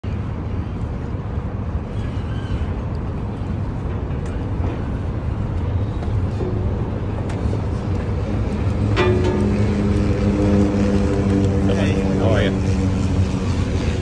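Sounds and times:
ferry engines idling: 3.2 - 14.0.

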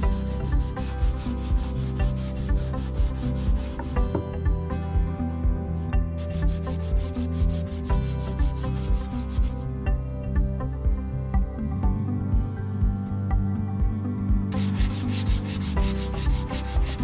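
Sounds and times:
sandpaper rubbing back and forth: 0.0 - 4.0, 6.2 - 9.6, 14.6 - 17.0
background music: 0.0 - 17.0.

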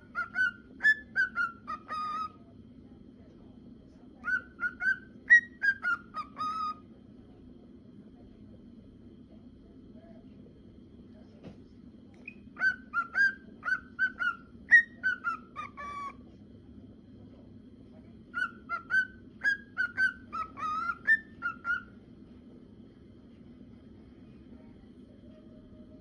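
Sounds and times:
cockatiel whistling: 0.0 - 2.4, 4.2 - 6.8, 12.2 - 16.2, 18.3 - 22.0
faint steady hum: 0.0 - 26.0.

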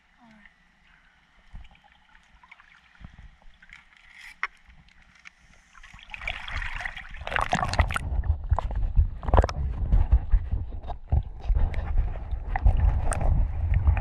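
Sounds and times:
pool water sloshing and splashing: 1.4 - 8.2.

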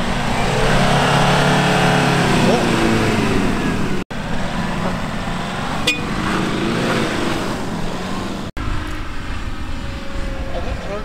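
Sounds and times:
tyres churning sand: 0.0 - 8.5
engine pulling hard: 0.0 - 11.0.

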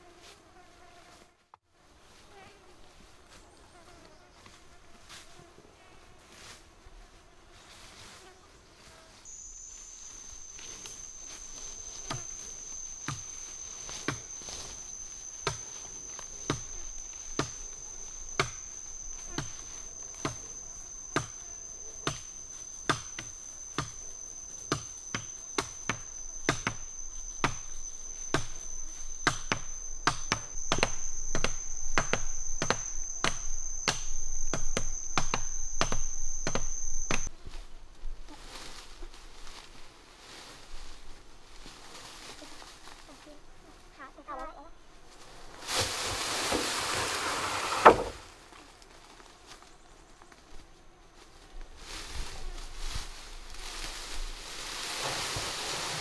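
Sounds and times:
high-pitched insect drone: 9.2 - 37.5
chopping into wood: 22.9 - 24.0, 29.2 - 37.3, 47.8 - 48.2.

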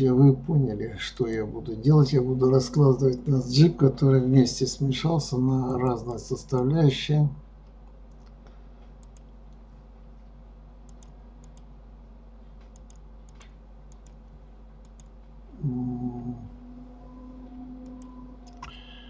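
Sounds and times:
steady low hum: 0.0 - 19.0
mouse and keyboard clicks: 12.6 - 14.2.

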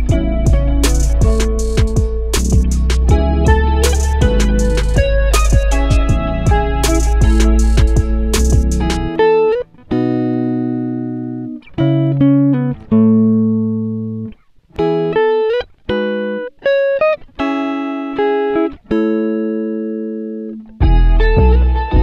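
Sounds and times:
low beat: 0.0 - 9.2, 20.8 - 22.0
instrumental music with ringing chords: 0.0 - 22.0.

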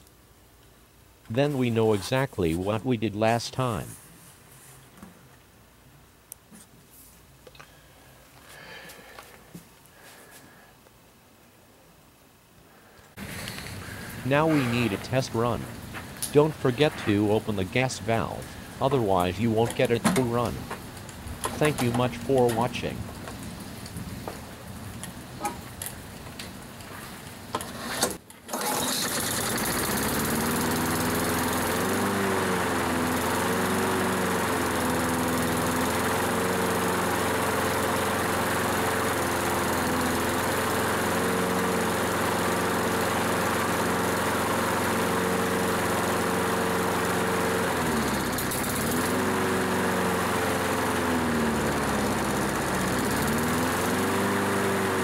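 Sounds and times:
lawn mower engine running: 13.2 - 55.0.

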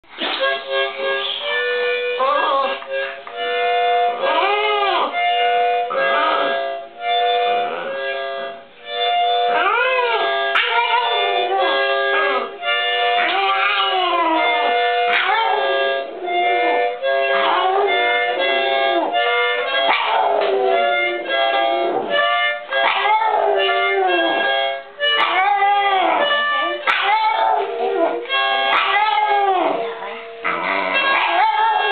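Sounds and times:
toy harmonica chords: 0.1 - 31.9
dog howling: 4.1 - 5.2, 9.5 - 19.2, 19.9 - 21.2, 21.8 - 22.2, 22.8 - 31.9.

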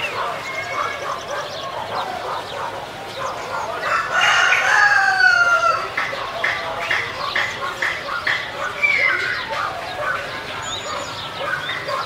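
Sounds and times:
rooster crowing: 3.8 - 6.0.

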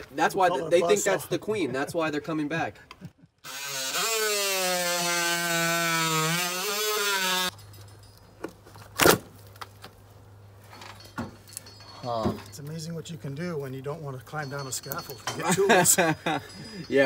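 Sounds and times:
oscillating multi-tool cutting: 3.4 - 7.6.

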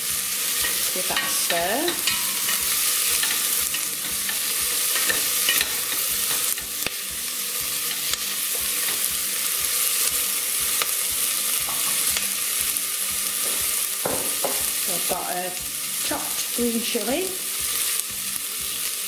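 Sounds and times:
vegetables sizzling in oil: 0.0 - 19.0
spoon clicking against pan: 0.6 - 7.0.

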